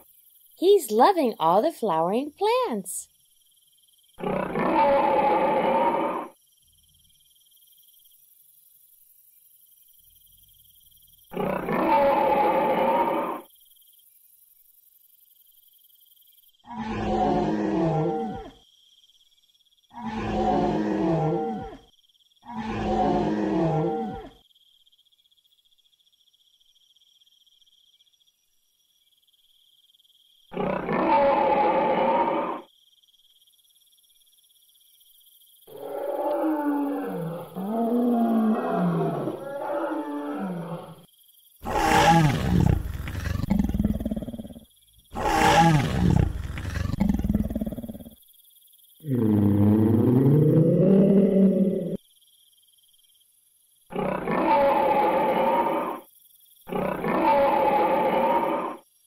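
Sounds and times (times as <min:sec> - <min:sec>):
dinosaur roars: 0:04.2 - 0:06.3, 0:16.7 - 0:18.5, 0:20.0 - 0:21.8, 0:22.5 - 0:24.3, 0:30.5 - 0:32.6, 0:35.7 - 0:41.0, 0:41.6 - 0:44.6, 0:45.2 - 0:48.1, 0:49.0 - 0:52.0.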